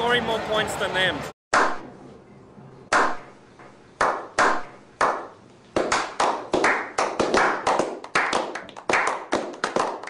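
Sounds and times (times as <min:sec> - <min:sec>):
group of men clapping: 0:04.0 - 0:10.0.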